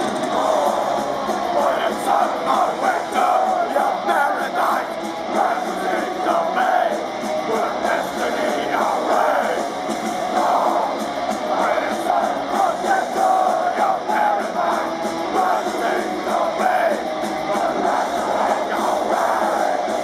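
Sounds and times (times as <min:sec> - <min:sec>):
distorted electric guitars: 0:00.0 - 0:20.0
drums: 0:00.0 - 0:20.0
shouted vocals: 0:00.0 - 0:20.0.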